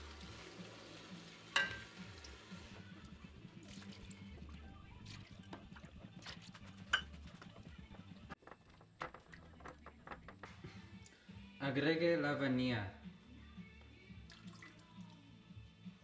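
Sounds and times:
cup clinking against metal pot: 1.6s - 2.0s, 6.9s - 7.2s.

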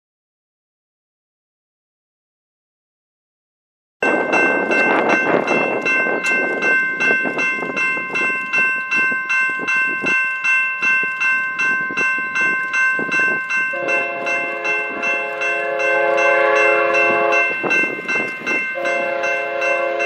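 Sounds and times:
crossing bell ringing: 4.0s - 20.0s
locomotive horn: 13.7s - 17.7s, 18.8s - 20.0s.

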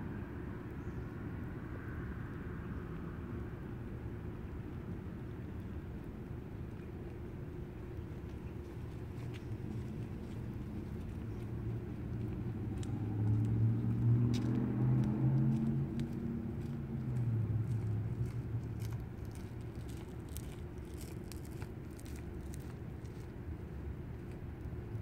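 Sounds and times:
vehicle engine passing: 11.9s - 20.5s.

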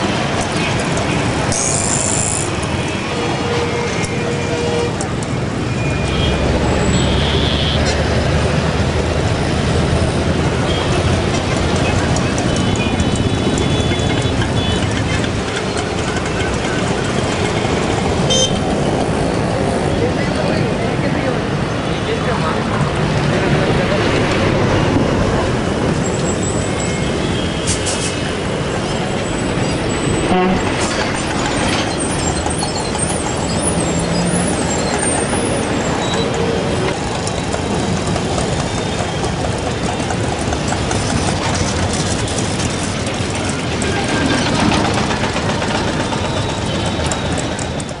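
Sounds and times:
dense road traffic: 0.0s - 48.0s
vehicle horns: 1.6s - 5.2s, 5.8s - 8.0s, 10.6s - 11.2s, 11.8s - 15.1s, 18.2s - 18.8s, 30.3s - 30.8s.

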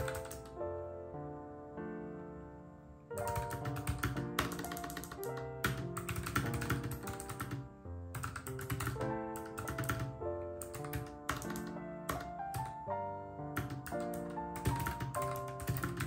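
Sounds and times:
typing on computer keyboard: 0.0s - 0.6s, 3.2s - 12.9s, 13.5s - 16.0s
background music: 0.0s - 16.0s.

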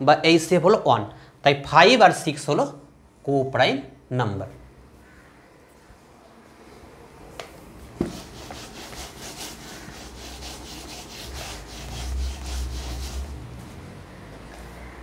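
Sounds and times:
eraser rubbing whiteboard: 8.0s - 13.6s.

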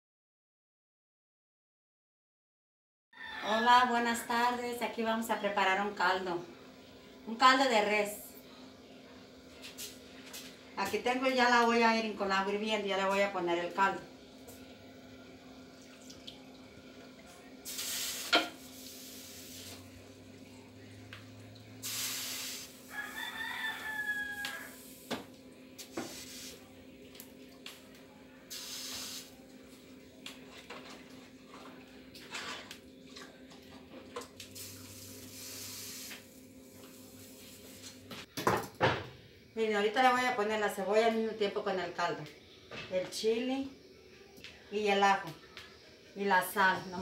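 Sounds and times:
rooster crowing: 3.1s - 4.4s, 22.8s - 24.9s.

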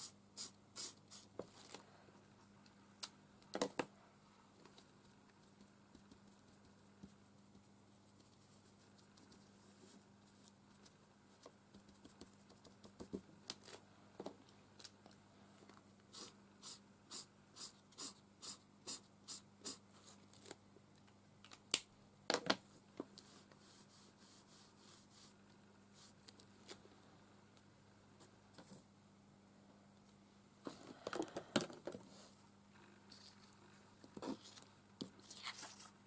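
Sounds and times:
marker nib strokes on card: 0.0s - 1.3s, 16.1s - 19.8s
faint steady hum: 0.0s - 36.0s.

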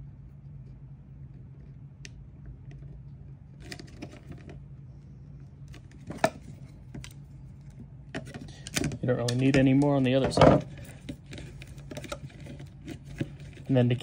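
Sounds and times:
steady low hum: 0.0s - 14.0s
clicks and rustles of handling plastic: 2.6s - 4.6s, 5.6s - 14.0s.

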